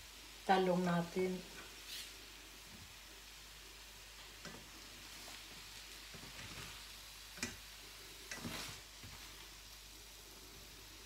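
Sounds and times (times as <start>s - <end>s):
spatula clacking against pan: 7.4s - 7.6s
spatula scraping frying pan: 7.4s - 9.4s.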